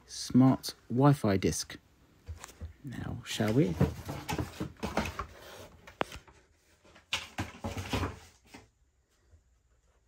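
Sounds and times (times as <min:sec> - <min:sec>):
cardboard rustling scrape: 0:03.4 - 0:08.7.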